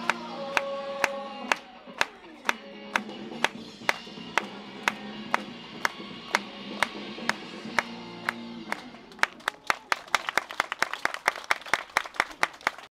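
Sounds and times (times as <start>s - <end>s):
dance music over loudspeakers: 0.0s - 9.0s
sharp claps: 0.0s - 12.9s.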